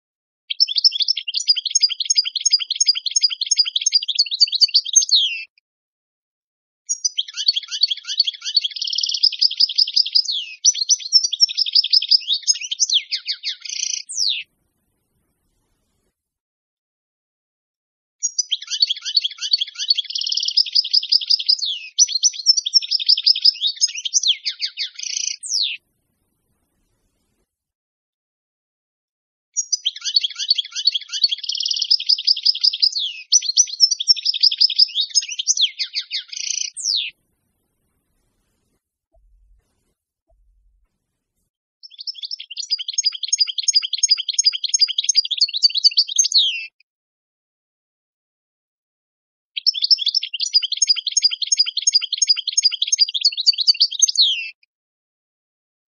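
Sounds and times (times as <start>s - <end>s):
goldfinch song: 0.5s - 5.5s, 6.9s - 14.8s, 18.2s - 26.0s, 29.6s - 40.8s, 41.8s - 46.8s, 49.6s - 54.6s.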